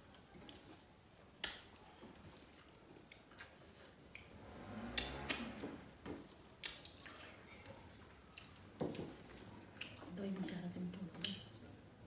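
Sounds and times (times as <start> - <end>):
chewing: 0.0 - 5.4, 6.2 - 11.8
sharp clicks and smacks: 1.4 - 1.8, 4.9 - 7.2.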